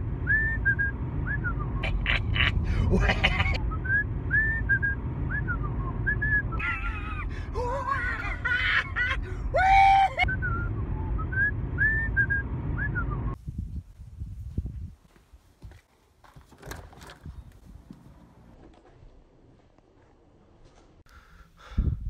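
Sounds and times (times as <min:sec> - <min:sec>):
car road noise: 0:00.0 - 0:13.4
man whistling a tune: 0:00.3 - 0:01.8, 0:03.7 - 0:06.6, 0:10.2 - 0:13.4.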